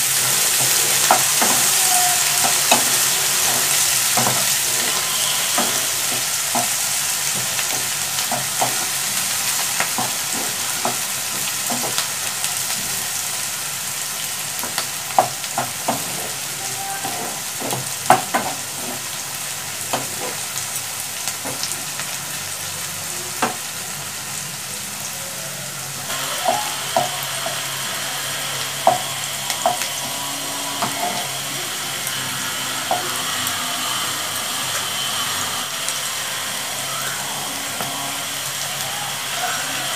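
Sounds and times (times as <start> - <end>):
vegetables sizzling in oil: 0.0 - 39.9
wooden spatula tapping pan: 0.5 - 12.1, 14.6 - 19.2, 26.4 - 27.6, 28.8 - 30.2.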